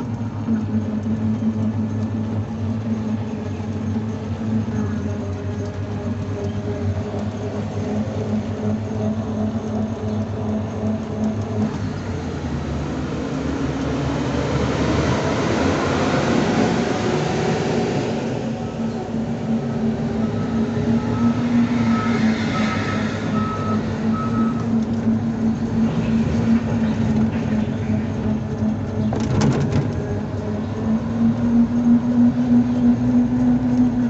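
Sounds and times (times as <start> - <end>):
traffic hum with road noise: 0.0 - 34.0
large vehicle passing: 1.4 - 34.0
short beeps: 20.2 - 24.8.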